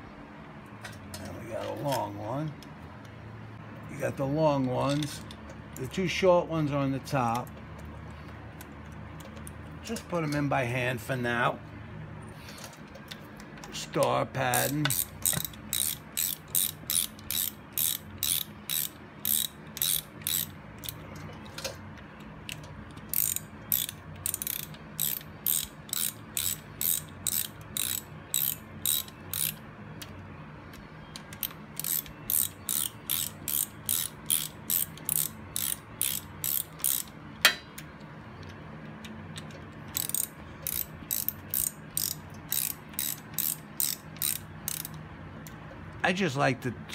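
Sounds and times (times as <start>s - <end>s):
hand ratchet clicking: 13.6s - 21.0s, 22.4s - 30.1s, 31.1s - 37.6s, 39.4s - 45.0s.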